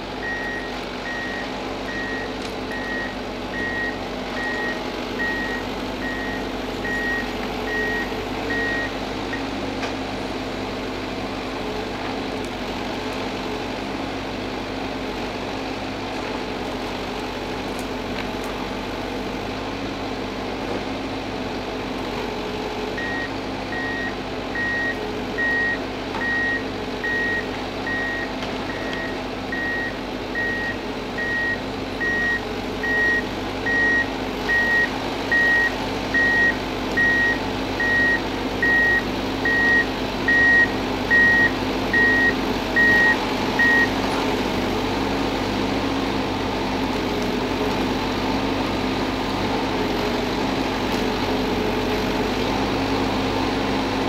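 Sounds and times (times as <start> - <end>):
diesel engine running: 0.0 - 54.0
reversing alarm beeping: 0.2 - 9.4, 23.0 - 44.0.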